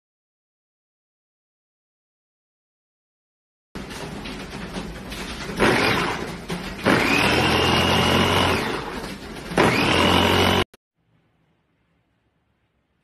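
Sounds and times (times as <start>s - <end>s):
food chopper motor whine: 6.8s - 9.0s, 9.6s - 10.7s
blades chopping food: 6.9s - 8.8s, 9.6s - 10.7s.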